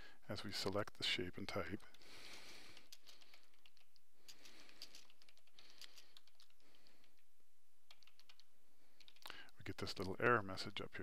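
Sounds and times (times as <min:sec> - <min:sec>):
keyboard typing clicks: 0:01.8 - 0:07.2, 0:07.9 - 0:10.2.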